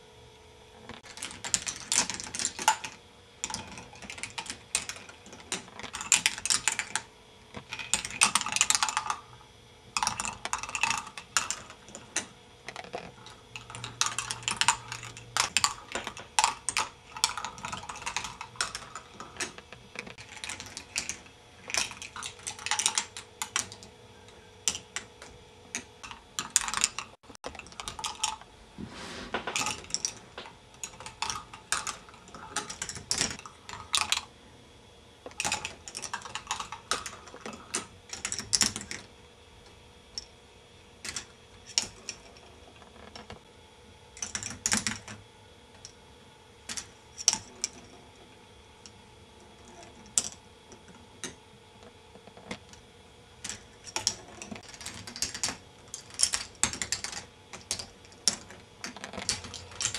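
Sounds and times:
faint steady hum: 0.0s - 59.9s
plastic balls clattering on tracks: 0.8s - 9.3s, 10.0s - 23.9s, 29.2s - 34.2s, 35.3s - 39.0s.

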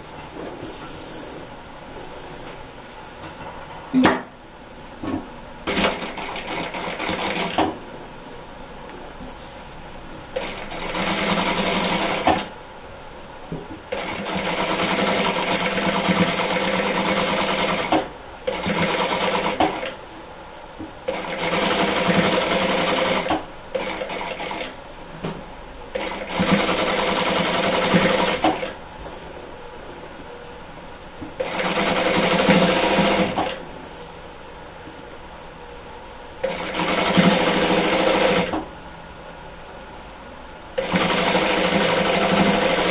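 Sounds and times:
sewing machine stitching: 5.7s - 7.6s, 10.4s - 12.5s, 13.9s - 20.0s, 21.1s - 24.7s, 26.0s - 28.7s, 31.4s - 33.6s, 36.4s - 38.6s, 40.8s - 42.9s.

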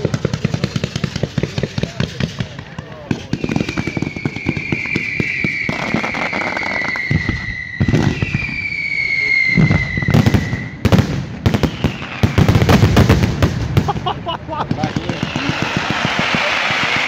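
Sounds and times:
firecracker bangs crackling: 0.0s - 17.0s
heavy firework bangs: 0.0s - 17.0s
falling firework whistles: 3.2s - 12.8s, 15.1s - 17.0s.

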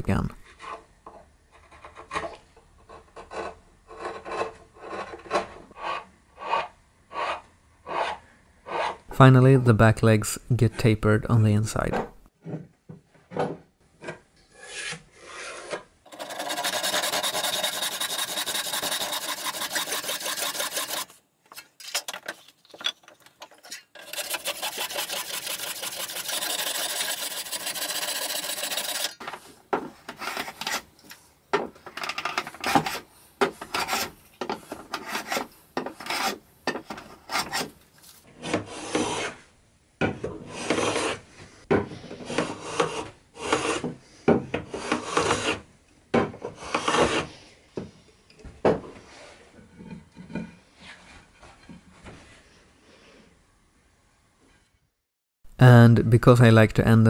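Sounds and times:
bench plane shaving wood: 14.7s - 21.1s, 24.0s - 29.3s, 33.6s - 34.1s, 34.8s - 36.4s, 38.4s - 39.4s, 40.5s - 41.2s, 42.0s - 43.9s, 44.7s - 45.6s, 46.5s - 47.3s
handsaw ripping wood: 15.4s - 21.2s, 24.0s - 29.3s, 46.6s - 47.3s.

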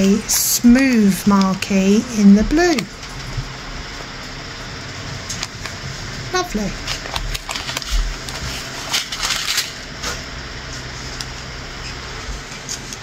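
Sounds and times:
plastic packaging crinkling: 6.8s - 9.8s.

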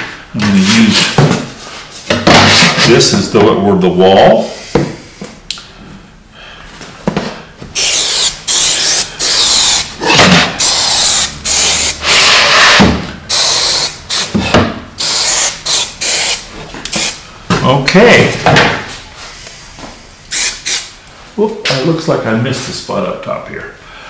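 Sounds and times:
aerosol can spray bursts: 7.8s - 9.9s, 10.6s - 12.5s, 13.3s - 14.3s, 15.0s - 17.2s, 20.3s - 20.9s.

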